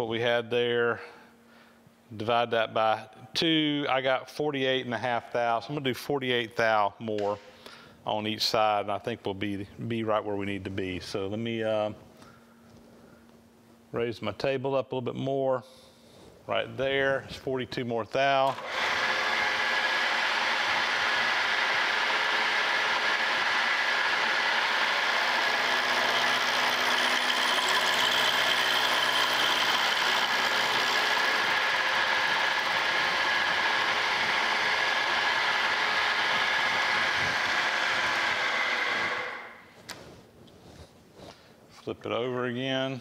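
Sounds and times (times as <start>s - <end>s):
milling machine whine: 18.5s - 39.6s
spindle winding down: 18.5s - 39.6s.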